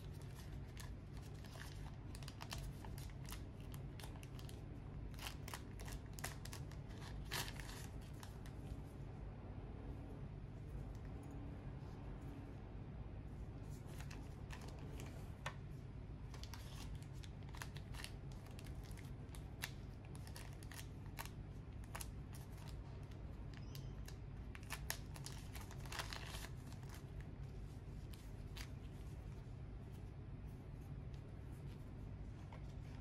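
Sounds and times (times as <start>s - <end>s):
plastic bag crinkling: 0.0s - 8.5s, 16.3s - 27.2s
steady low hum: 0.0s - 33.0s.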